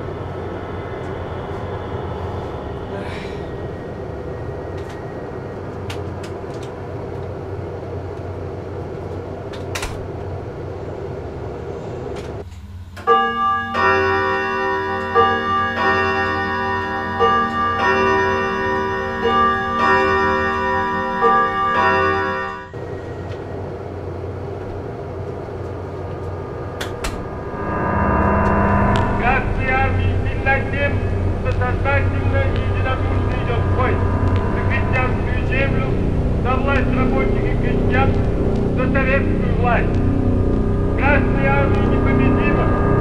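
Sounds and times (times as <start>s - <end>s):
low rumble: 0.0s - 12.4s, 15.4s - 43.0s
organ chords: 13.0s - 24.0s, 25.8s - 43.0s.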